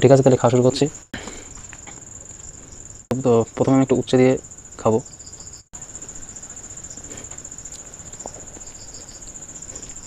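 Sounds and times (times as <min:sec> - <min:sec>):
crickets chirring: 0:00.0 - 0:10.0
faint chewing clicks: 0:07.0 - 0:10.0.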